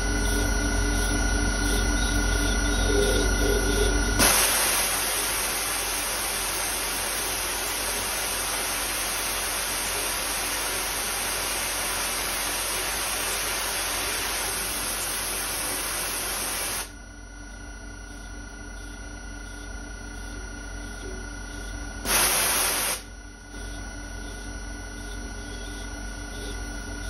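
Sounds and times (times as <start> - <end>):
air blast hissing from nozzle: 4.2 - 16.9, 22.0 - 23.1.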